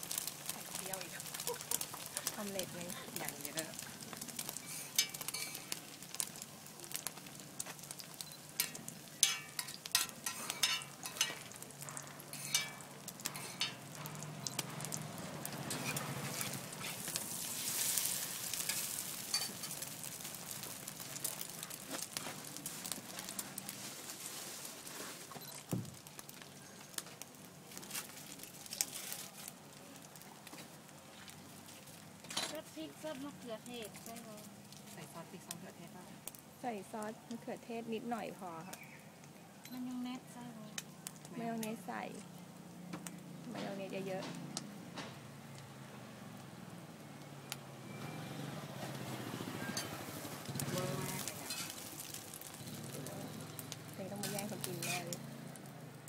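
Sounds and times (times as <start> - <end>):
egg and bacon sizzling on griddle: 0.0 - 56.0
metal spatula scraping pan: 4.6 - 5.7, 8.6 - 11.4, 12.3 - 13.9, 15.6 - 17.2, 51.3 - 51.8, 54.3 - 55.1.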